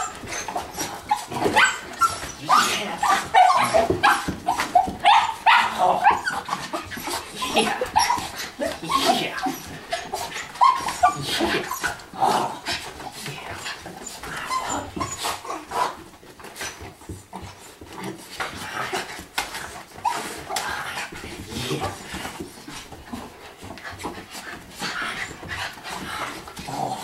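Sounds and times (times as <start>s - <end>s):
dogs panting: 0.0s - 27.0s
dogs whimpering: 0.0s - 27.0s.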